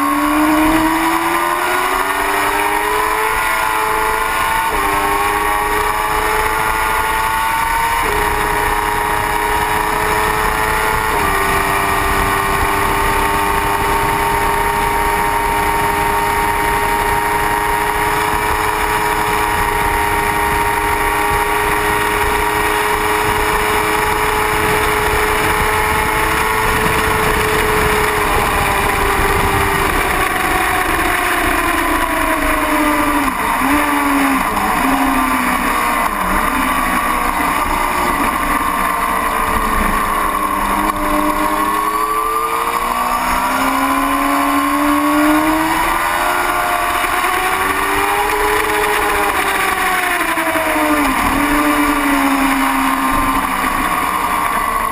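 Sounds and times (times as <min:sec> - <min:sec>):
sport motorcycle engine: 0:00.0 - 0:54.9
wind rushing: 0:23.0 - 0:31.6.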